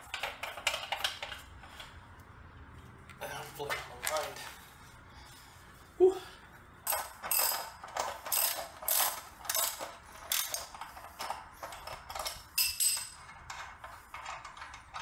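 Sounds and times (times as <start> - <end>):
ratchet wrench clicking: 6.9 - 13.2.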